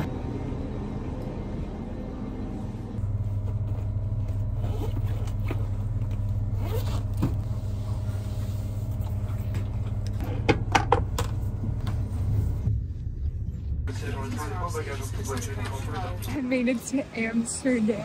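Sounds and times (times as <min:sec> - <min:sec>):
train carriage hum: 0:00.0 - 0:18.0
backpack rustling and unzipping: 0:03.4 - 0:07.6.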